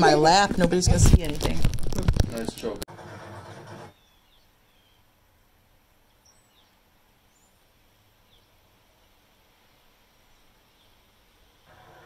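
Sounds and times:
steady hiss: 0:04.4 - 0:12.0.

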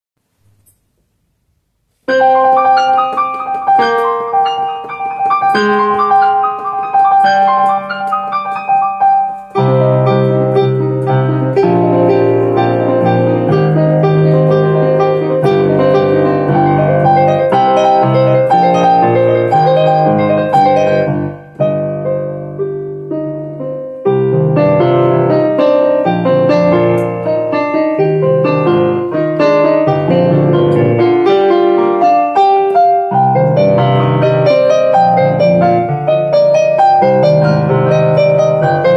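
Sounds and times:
digital piano solo: 0:00.2 - 0:38.9.

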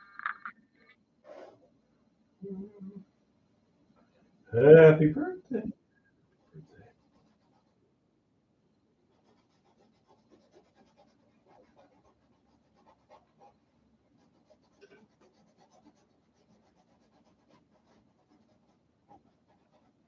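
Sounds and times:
paint brush strokes: 0:01.2 - 0:01.7, 0:06.4 - 0:07.8, 0:09.1 - 0:20.0.

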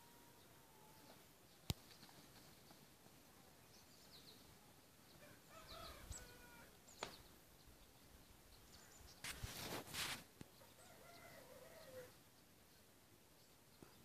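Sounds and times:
distant rooster crowing: 0:05.2 - 0:06.8, 0:10.6 - 0:12.2.

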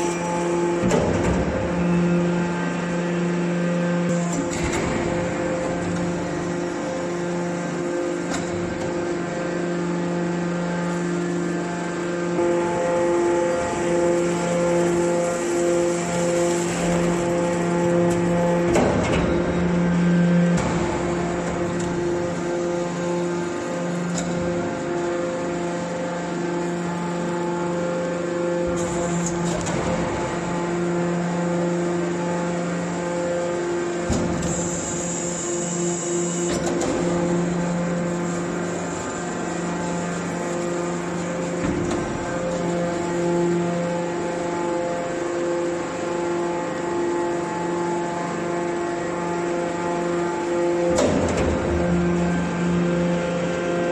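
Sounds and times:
hydraulic pump humming: 0:00.0 - 0:53.9
low machine rumble: 0:00.0 - 0:53.9
machine clunk: 0:00.8 - 0:01.9, 0:04.1 - 0:06.6, 0:16.2 - 0:22.6, 0:50.9 - 0:52.4.

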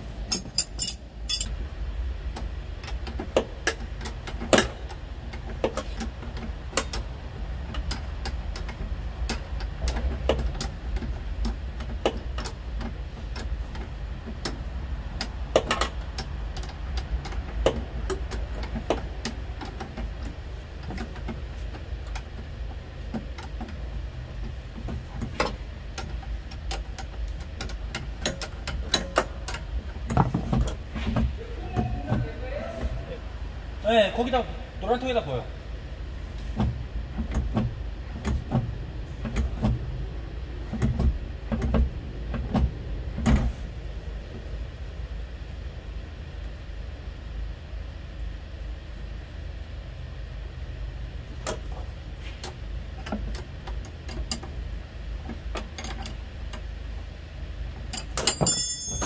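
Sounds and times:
steady low rumble: 0:00.0 - 0:58.0
hand tools clicking and knocking on metal: 0:00.2 - 0:01.6, 0:02.3 - 0:32.2, 0:57.8 - 0:59.0.

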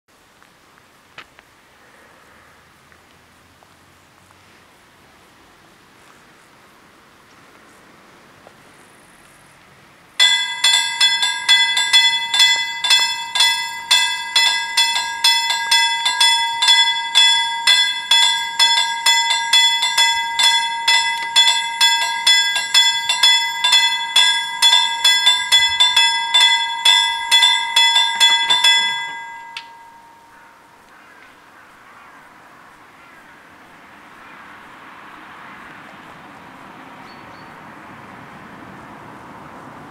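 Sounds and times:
level crossing bells ringing: 0:10.2 - 0:30.9.

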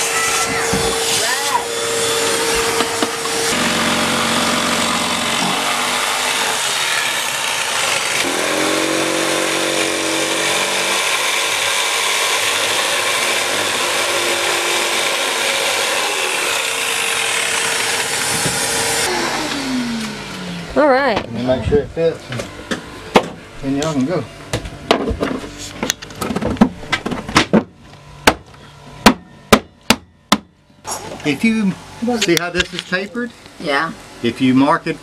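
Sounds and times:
jigsaw sawing through panel: 0:00.0 - 0:20.0
shop vacuum running: 0:00.0 - 0:29.6, 0:30.9 - 0:35.0.

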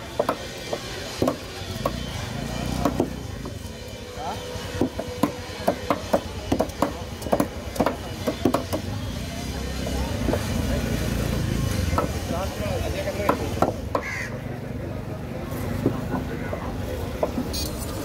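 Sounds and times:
knives chopping on wooden boards: 0:00.1 - 0:03.6, 0:04.8 - 0:08.9, 0:11.9 - 0:12.3, 0:13.1 - 0:14.2.

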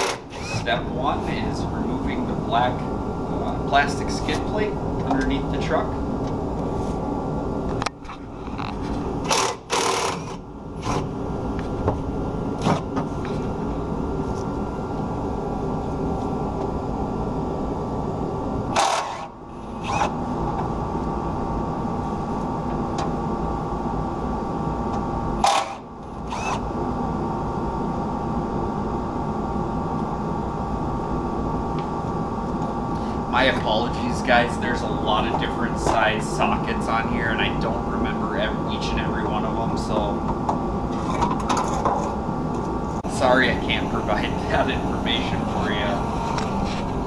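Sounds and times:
impact driver hammering: 0:00.0 - 0:00.6, 0:09.2 - 0:11.0, 0:25.4 - 0:25.8.

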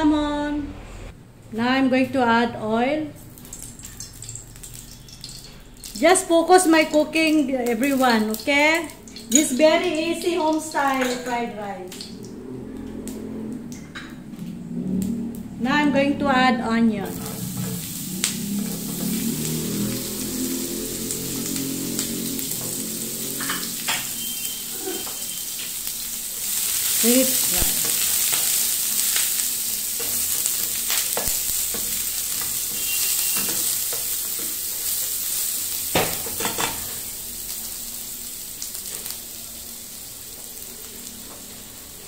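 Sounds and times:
onion sizzling in hot oil: 0:03.0 - 0:13.8, 0:14.4 - 0:42.0.

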